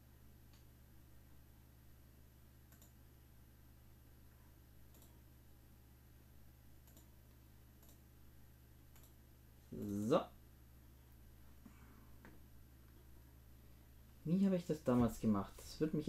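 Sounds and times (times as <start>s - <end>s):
steady low hum: 0.0s - 16.0s
faint clicks: 2.7s - 3.0s, 4.9s - 5.1s, 6.8s - 7.1s, 8.9s - 9.2s.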